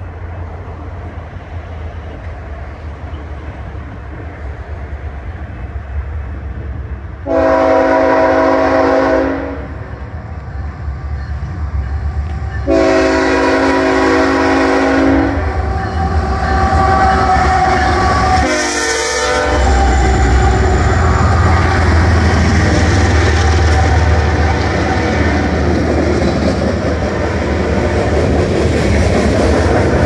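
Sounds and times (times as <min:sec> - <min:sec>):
locomotive engines and wheels rumbling: 0:00.0 - 0:30.0
locomotive air horn blasts: 0:07.2 - 0:09.9, 0:12.6 - 0:21.2.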